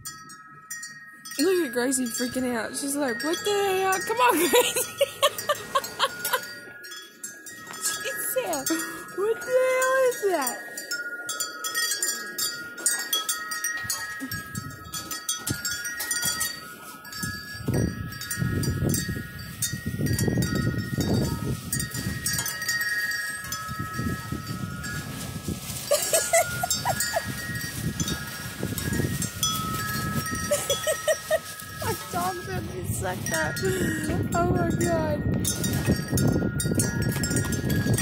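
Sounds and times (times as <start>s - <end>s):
wind chime ringing: 0.0s - 38.0s
wind rumbling on microphone: 0.0s - 38.0s.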